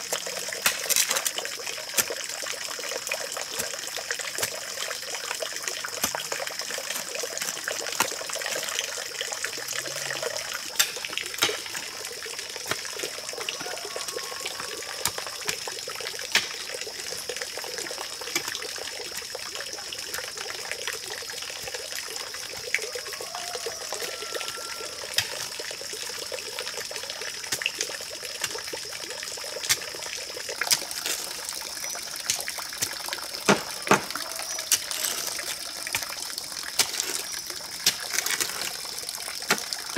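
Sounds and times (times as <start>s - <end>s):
water trickling from pipe: 0.0s - 39.9s
shovel digging into soil: 30.6s - 31.5s, 33.5s - 36.1s, 36.8s - 38.9s.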